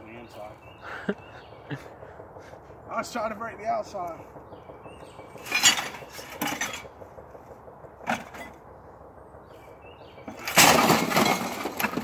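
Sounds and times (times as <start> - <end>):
tv set crashing on ground: 10.3 - 12.0.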